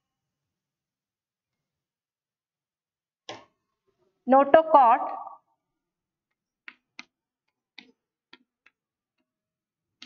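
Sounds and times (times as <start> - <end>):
chalk tapping on chalkboard: 6.3 - 9.4.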